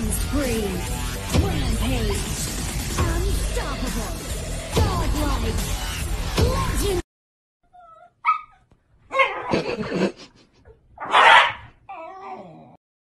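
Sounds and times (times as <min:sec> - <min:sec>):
dogs yipping and whining: 0:07.7 - 0:09.6, 0:11.0 - 0:12.8
dogs barking harshly: 0:11.0 - 0:11.8.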